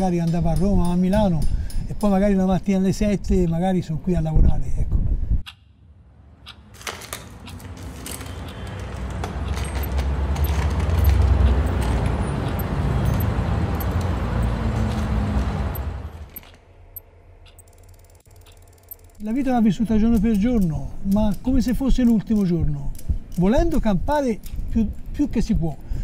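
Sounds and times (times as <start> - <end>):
light metallic clicks and jingles: 0.0 - 2.3, 8.0 - 15.0, 17.5 - 25.9.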